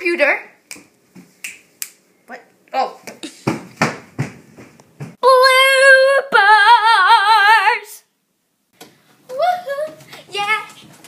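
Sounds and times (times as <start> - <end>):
knocks and rustling: 3.4 - 5.2
girl singing with vibrato: 5.2 - 8.1.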